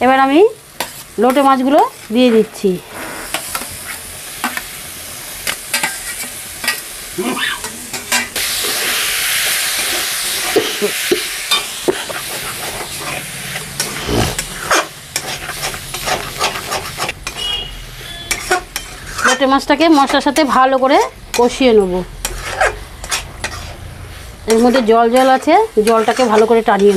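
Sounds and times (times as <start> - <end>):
fish sizzling in oil: 0.0 - 26.9
spatula scraping a pan: 11.9 - 21.5, 22.2 - 23.9, 24.5 - 26.9.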